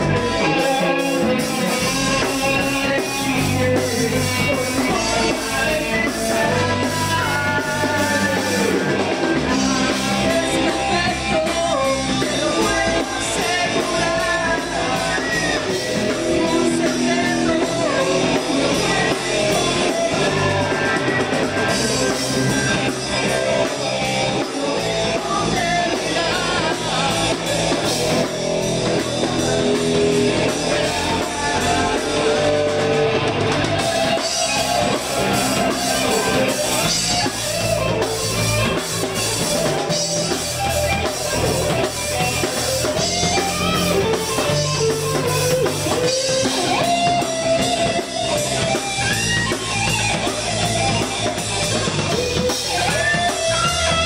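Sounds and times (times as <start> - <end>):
rock music with singing: 0.0 - 54.0.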